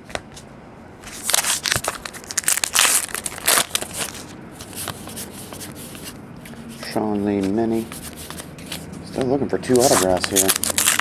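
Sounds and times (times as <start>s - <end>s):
wrapper crinkling and tearing: 1.2s - 4.3s, 9.6s - 11.0s.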